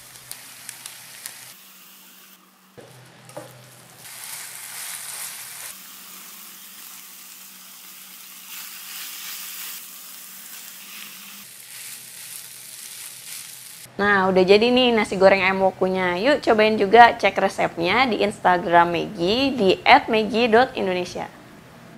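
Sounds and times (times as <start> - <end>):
food sizzling in a frying pan: 0.0 - 13.9.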